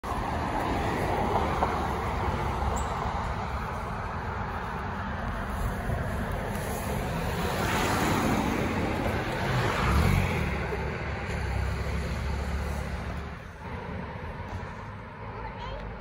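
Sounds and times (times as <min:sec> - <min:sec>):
cars driving past: 0:00.0 - 0:16.0.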